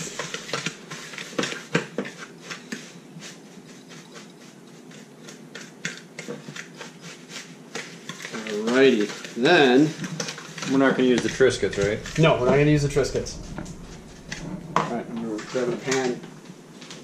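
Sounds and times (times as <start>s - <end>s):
hands mixing sugar and salt: 0.2s - 10.0s.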